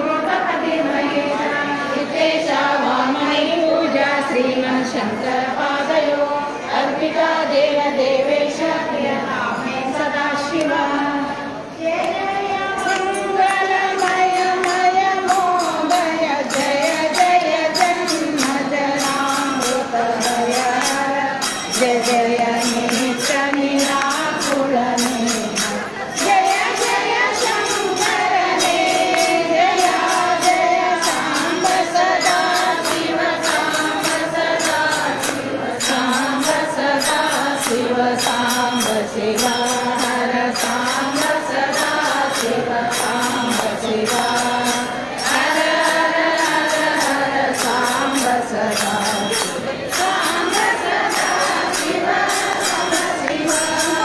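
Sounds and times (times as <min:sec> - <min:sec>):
group singing devotional song: 0:00.0 - 0:54.0
jingling percussion beat: 0:00.0 - 0:54.0.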